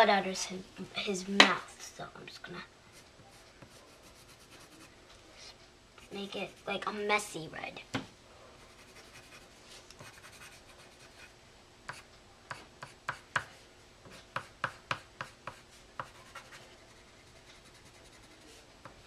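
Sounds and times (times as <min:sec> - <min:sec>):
colored pencil scratching on paper: 0:02.9 - 0:04.9, 0:06.0 - 0:06.9, 0:08.6 - 0:11.3, 0:11.9 - 0:18.7.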